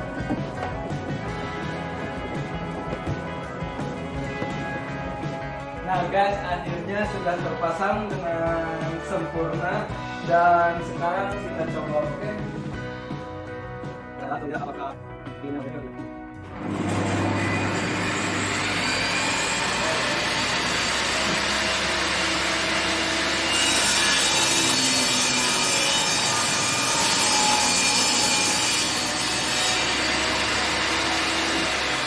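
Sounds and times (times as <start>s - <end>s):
table saw running: 16.5s - 32.0s
saw blade cutting through board: 16.7s - 32.0s.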